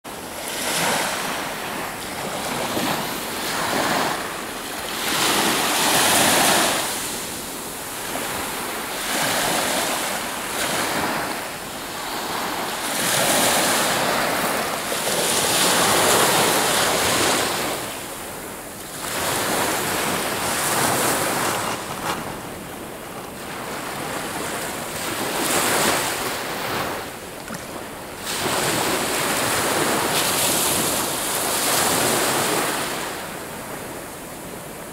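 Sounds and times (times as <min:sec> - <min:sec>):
small waves breaking on beach: 0:00.1 - 0:34.9.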